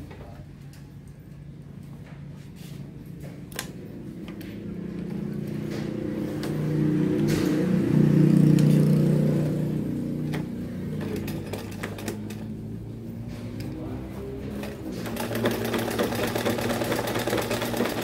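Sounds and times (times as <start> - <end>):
sewing machine humming: 4.9 - 13.0, 13.6 - 18.0.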